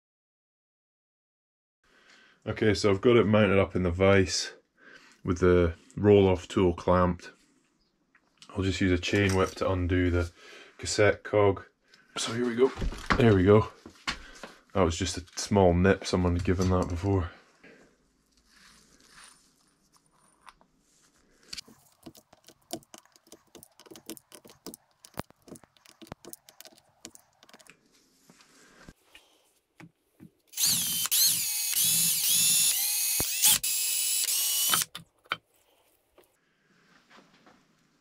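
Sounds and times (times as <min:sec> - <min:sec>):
cordless drill whining: 0:30.5 - 0:35.0.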